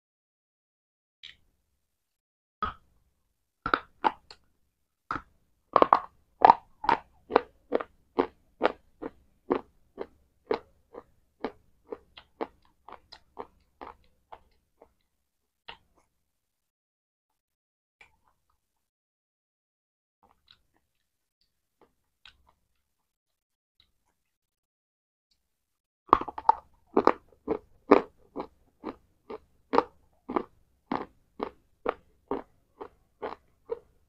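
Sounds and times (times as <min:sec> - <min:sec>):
crunchy chewing: 0:05.8 - 0:15.0, 0:26.1 - 0:34.0.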